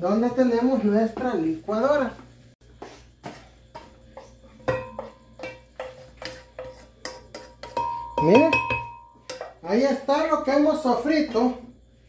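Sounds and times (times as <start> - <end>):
spatula knocking saucepan: 3.2 - 9.6.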